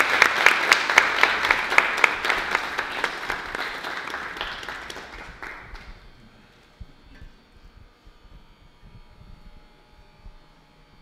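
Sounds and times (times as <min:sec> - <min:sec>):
small audience applauding: 0:00.0 - 0:06.1.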